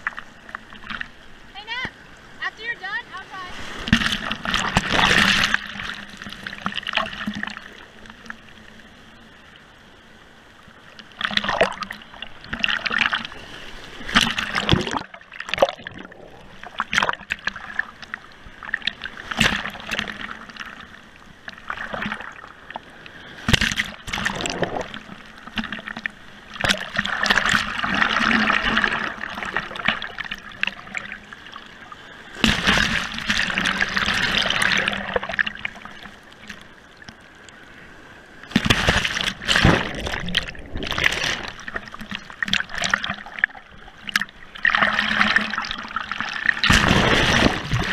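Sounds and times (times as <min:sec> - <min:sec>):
sea water splashing: 0:00.0 - 0:09.5, 0:10.3 - 0:47.9
surf breaking: 0:02.8 - 0:07.8, 0:32.3 - 0:36.6, 0:38.4 - 0:43.4, 0:44.1 - 0:47.9.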